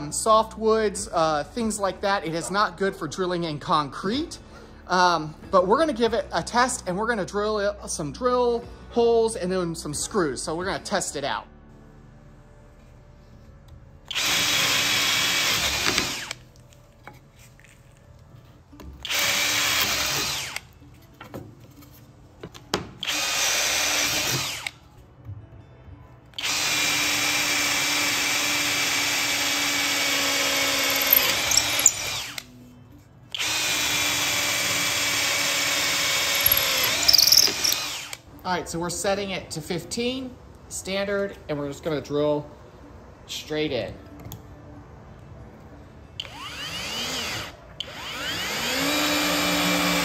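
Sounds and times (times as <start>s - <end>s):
cordless drill boring through wood: 14.1s - 16.4s, 19.0s - 20.6s, 26.4s - 32.4s, 33.4s - 38.2s, 46.2s - 50.0s.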